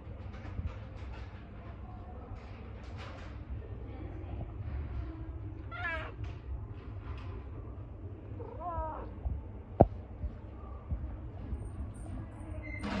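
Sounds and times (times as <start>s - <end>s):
cat meowing: 5.7s - 6.2s, 8.4s - 9.1s.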